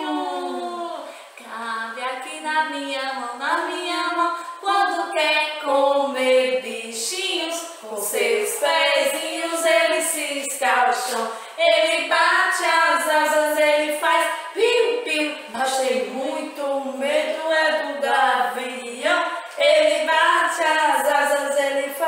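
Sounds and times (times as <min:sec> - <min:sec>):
women singing unaccompanied: 0:00.0 - 0:22.0.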